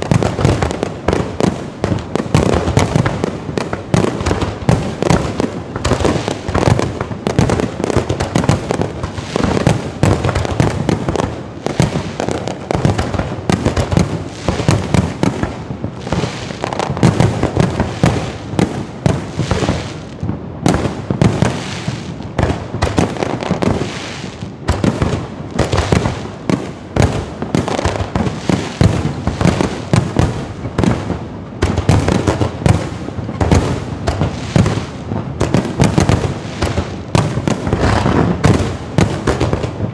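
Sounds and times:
firecrackers banging: 0.0s - 39.9s.

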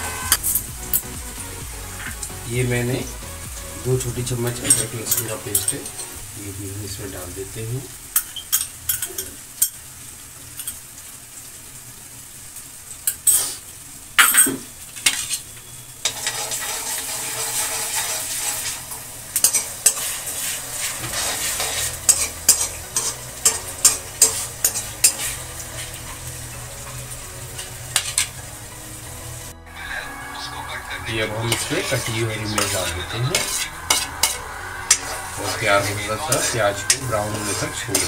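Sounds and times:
onions sizzling in hot oil: 0.0s - 38.0s
metal spatula scraping a pan: 4.4s - 6.2s, 15.0s - 28.5s, 31.1s - 38.0s.

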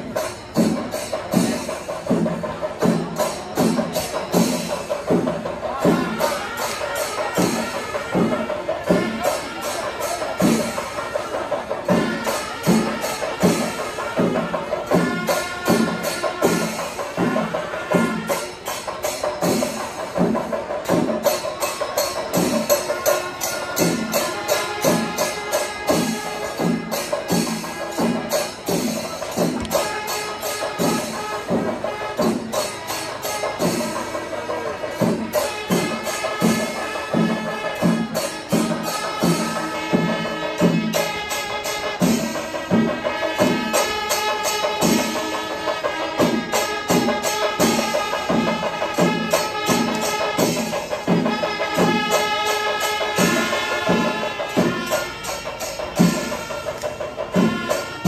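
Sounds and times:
drums beating: 0.0s - 58.0s
hand cymbals clashing: 0.0s - 58.0s.

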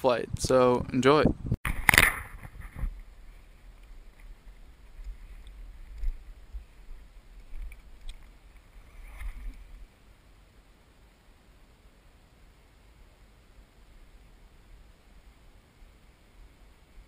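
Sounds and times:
wind rumble on microphone: 0.1s - 9.9s
camera handling noise: 1.7s - 3.0s.

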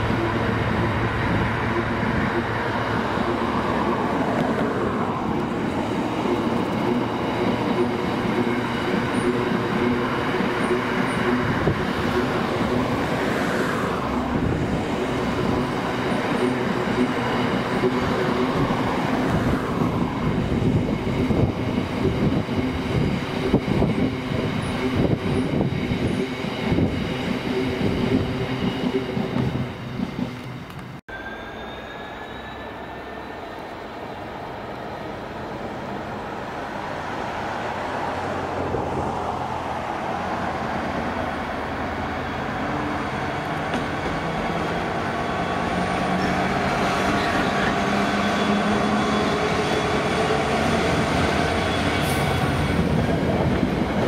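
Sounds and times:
rumble of train wheels: 0.0s - 31.0s, 31.6s - 54.0s
diesel locomotive engine: 0.0s - 54.0s
high wheel squeal: 30.4s - 34.0s, 41.7s - 53.3s.

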